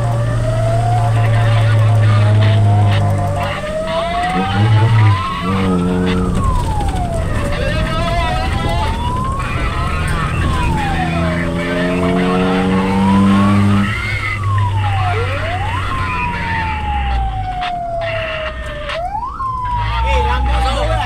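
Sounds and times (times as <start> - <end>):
low engine rumble: 0.0 - 20.5
fire engine siren wailing: 0.0 - 21.0
long steady horn blast: 4.2 - 6.5.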